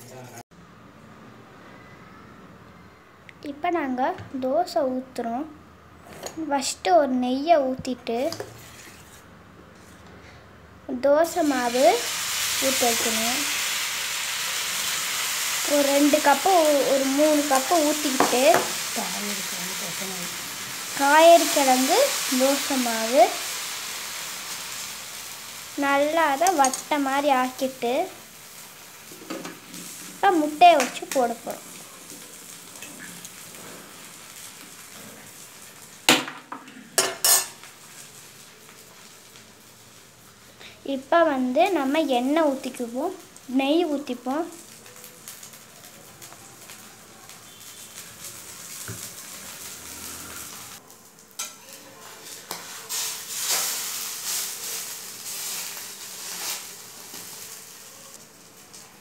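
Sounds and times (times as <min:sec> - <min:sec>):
food sizzling on griddle: 0:07.3 - 0:10.0, 0:10.9 - 0:36.4, 0:37.0 - 0:59.0
spatula scraping a pan: 0:08.3 - 0:10.4, 0:37.0 - 0:37.6, 0:51.4 - 0:57.6.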